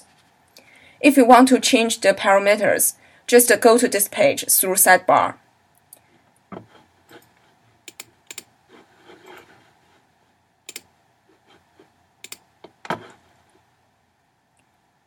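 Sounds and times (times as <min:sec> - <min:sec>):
computer mouse clicks: 0:07.1 - 0:08.5, 0:10.7 - 0:10.9, 0:12.2 - 0:12.5.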